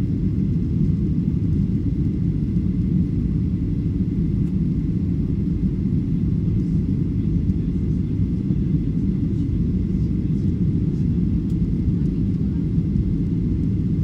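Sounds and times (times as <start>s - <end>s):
jet engines rumbling: 0.0s - 14.0s.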